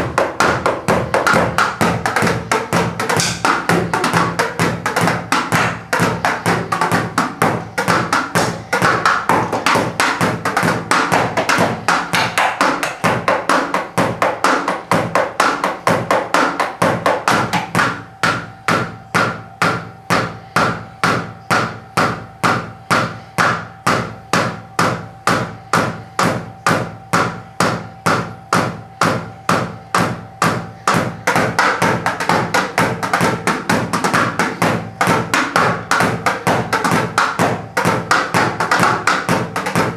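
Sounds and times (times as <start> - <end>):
cooling fan humming: 0.0 - 39.9
drumsticks tapping on drum pads: 0.2 - 18.4.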